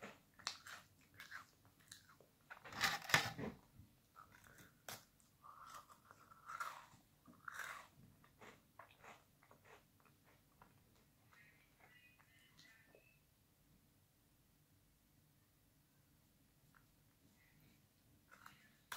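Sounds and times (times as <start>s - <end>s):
person crunching biscuits: 0.0s - 3.2s, 4.1s - 10.8s.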